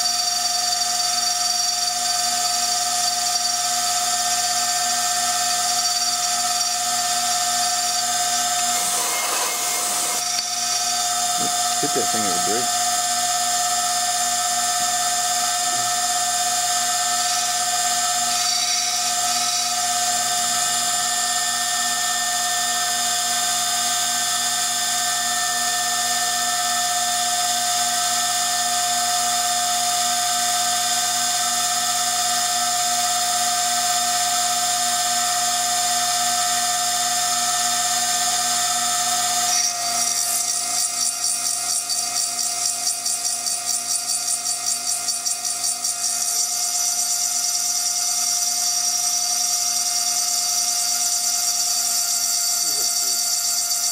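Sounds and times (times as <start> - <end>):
engraving spindle whining: 0.0 - 27.8, 50.6 - 53.9.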